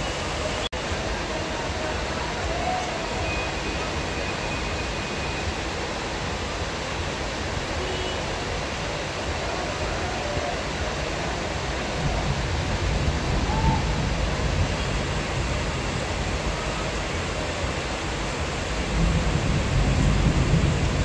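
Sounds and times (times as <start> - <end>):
heavy rain falling: 0.0 - 21.0
thunder rumbling: 11.9 - 21.0.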